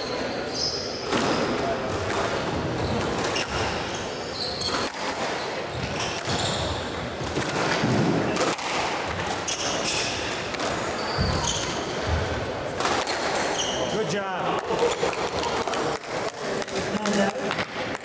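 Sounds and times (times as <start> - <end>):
squash ball hitting rackets and walls: 1.0 - 13.8
shoes squeaking on wooden floor: 2.7 - 7.2, 9.4 - 12.4, 13.0 - 14.1.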